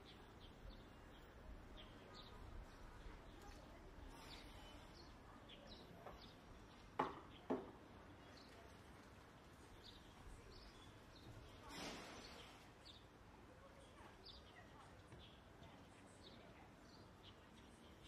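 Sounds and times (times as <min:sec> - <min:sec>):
faint bird chirps: 0:00.0 - 0:07.4.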